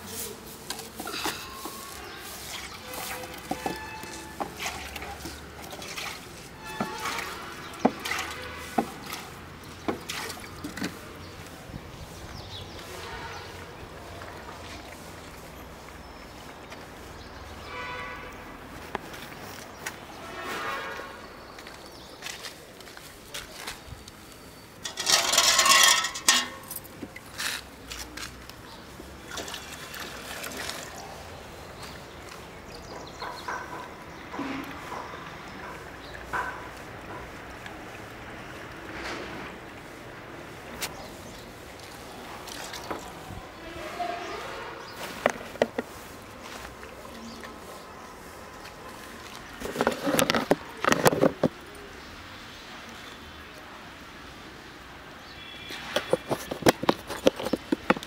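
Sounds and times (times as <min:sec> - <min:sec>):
liquid splashing into steel bowl: 0:02.3 - 0:09.2.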